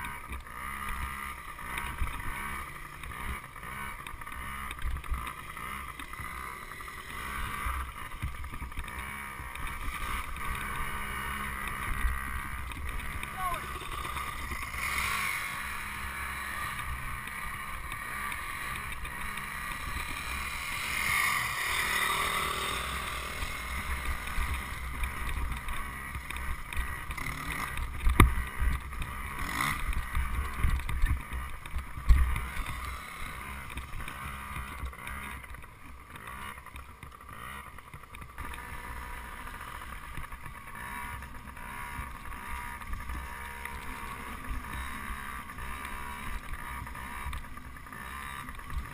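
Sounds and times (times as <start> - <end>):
muffled dirt bike engine: 0.0 - 48.9.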